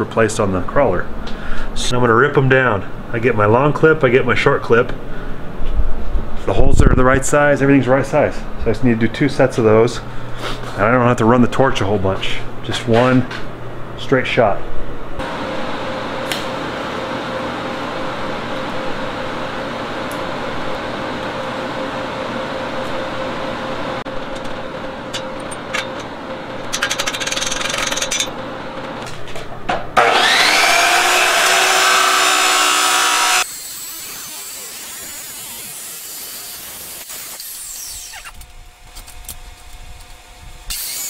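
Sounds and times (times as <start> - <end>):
chop saw motor whine: 30.0 - 41.0
welding hum and hiss: 33.1 - 41.0.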